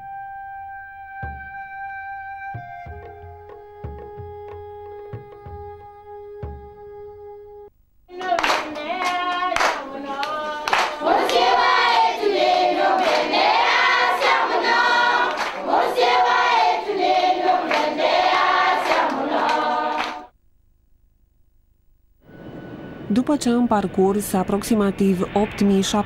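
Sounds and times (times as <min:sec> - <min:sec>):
hand claps: 0:08.2 - 0:11.5, 0:13.0 - 0:13.3, 0:15.2 - 0:15.7, 0:17.6 - 0:20.3
choir singing: 0:09.0 - 0:20.3
brief held tone: 0:22.2 - 0:23.1.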